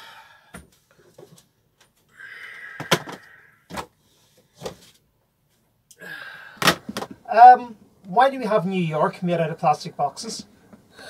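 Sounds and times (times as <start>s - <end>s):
plastic boxes knocking down: 2.8s - 3.9s, 6.6s - 7.2s.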